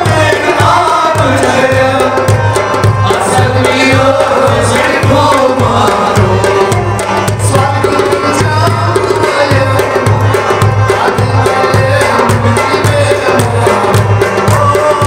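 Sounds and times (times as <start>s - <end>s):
harmonium chords: 0.0s - 15.0s
man singing: 0.0s - 15.0s.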